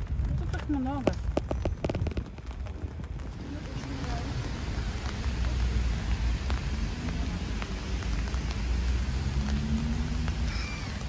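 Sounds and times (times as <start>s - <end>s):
rain on wet pavement: 0.0s - 11.0s.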